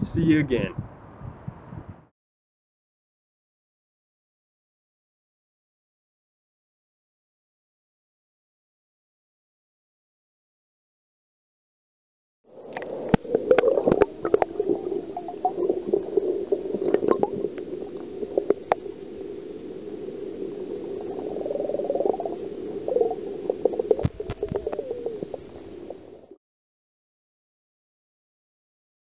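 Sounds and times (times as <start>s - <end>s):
muffled underwater noise: 12.6s - 26.4s
sharp underwater clicks and knocks: 23.6s - 25.4s.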